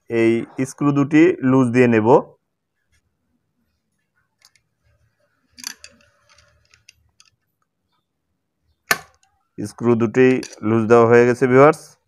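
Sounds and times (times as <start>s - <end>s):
screwdriver metal clicks and scrapes: 5.6s - 7.4s.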